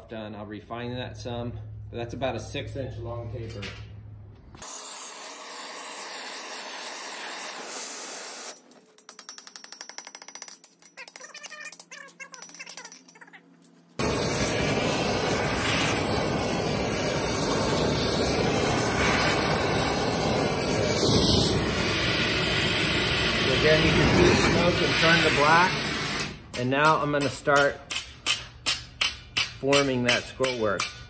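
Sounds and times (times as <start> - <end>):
torch flame roaring: 4.6 - 8.6, 14.0 - 26.4
steady hiss: 14.0 - 26.3.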